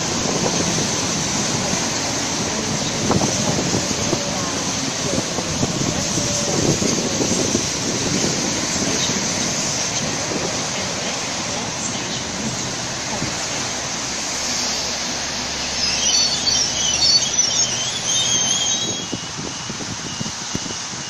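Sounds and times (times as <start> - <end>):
wind buffeting microphone: 0.0 - 14.2, 18.0 - 21.0
train rushing noise: 0.0 - 21.0
wheel clicks and squeals: 15.6 - 20.8.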